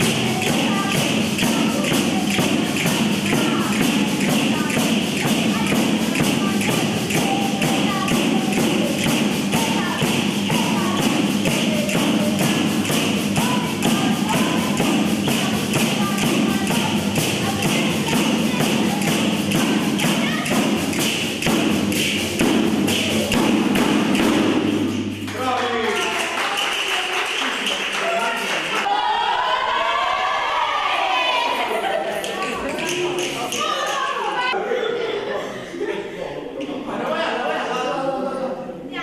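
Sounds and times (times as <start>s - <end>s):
woman singing: 0.0s - 21.1s
frame drums with jingles beating: 0.0s - 25.3s.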